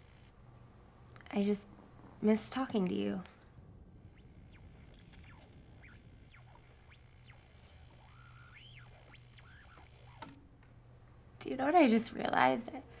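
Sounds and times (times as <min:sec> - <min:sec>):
faint low hum: 0:00.0 - 0:13.0
high squeaky chirps: 0:03.8 - 0:10.4.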